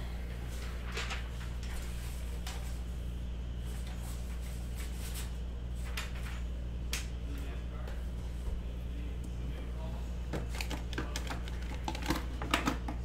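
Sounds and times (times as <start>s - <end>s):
steady low hum: 0.0s - 13.0s
paper rustling: 0.5s - 2.9s.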